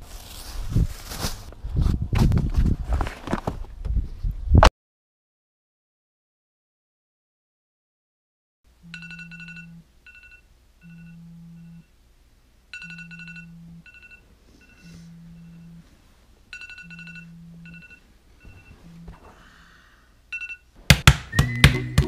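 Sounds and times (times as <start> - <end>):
rustle: 0.0 - 4.3
phone vibration buzzing: 14.7 - 15.9, 16.9 - 19.2.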